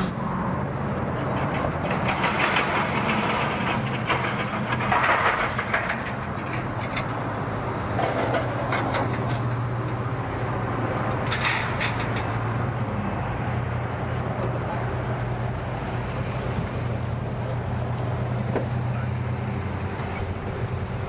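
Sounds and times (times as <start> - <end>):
rattles and clatter: 0.0 - 13.0
truck engine idling: 0.0 - 21.0.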